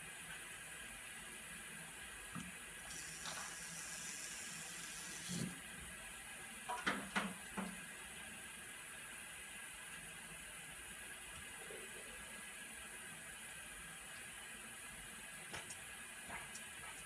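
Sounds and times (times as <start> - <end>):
water running from a hose: 2.8 - 5.6.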